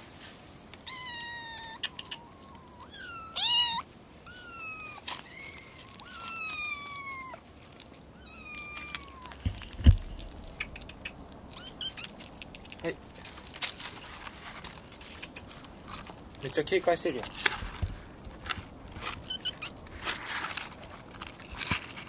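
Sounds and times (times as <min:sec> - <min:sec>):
kitten meowing: 0:00.9 - 0:07.4, 0:08.2 - 0:12.2, 0:19.2 - 0:19.8
low thump: 0:09.5 - 0:10.4.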